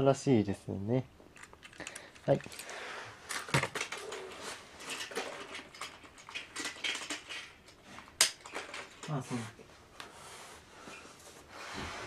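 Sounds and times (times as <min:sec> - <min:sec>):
plastic toy trains clicking and rattling: 0:01.4 - 0:09.5.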